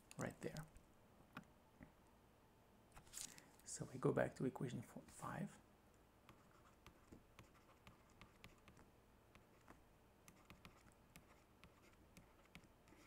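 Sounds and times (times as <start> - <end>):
stylus writing on a tablet: 6.3 - 13.0.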